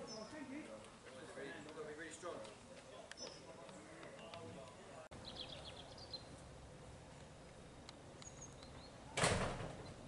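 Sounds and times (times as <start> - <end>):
faint bird chirps: 5.2 - 6.4, 8.2 - 9.2.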